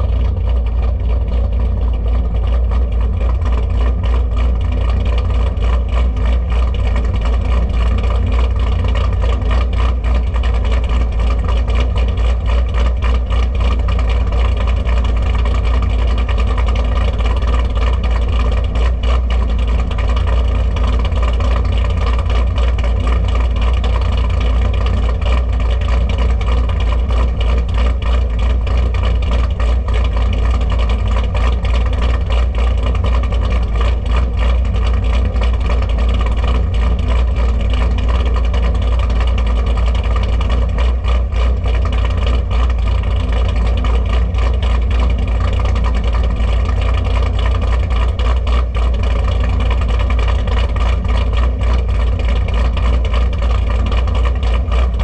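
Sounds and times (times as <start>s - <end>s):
car engine idling loudly: 0.0s - 55.0s.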